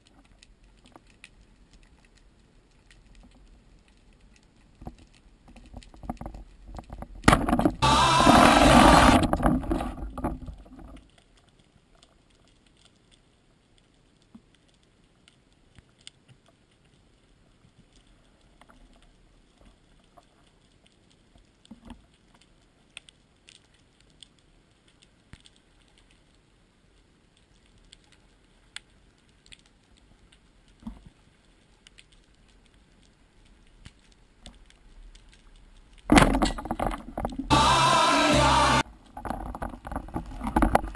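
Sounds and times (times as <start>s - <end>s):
faint underwater clicks and ticks: 0.0s - 7.8s, 8.6s - 37.5s, 38.8s - 40.9s
loud underwater noise: 7.3s - 11.0s, 36.1s - 40.9s.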